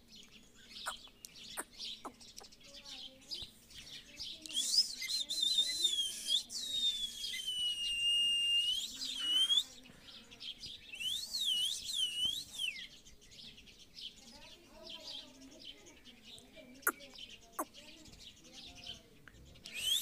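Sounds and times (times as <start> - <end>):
parakeet whistling: 19.7 - 20.0.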